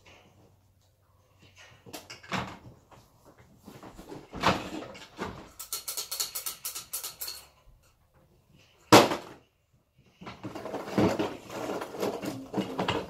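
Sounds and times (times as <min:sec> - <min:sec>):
plastic bricks clattering: 0:10.3 - 0:13.0.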